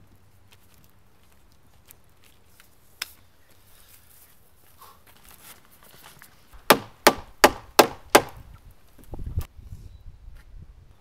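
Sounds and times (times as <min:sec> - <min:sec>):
rubber mallet striking wood: 0:06.6 - 0:08.4.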